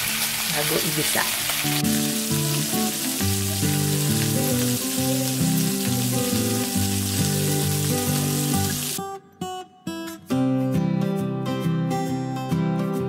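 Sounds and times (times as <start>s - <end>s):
chicken sizzling in hot oil: 0.0s - 9.0s
background music: 0.0s - 13.0s.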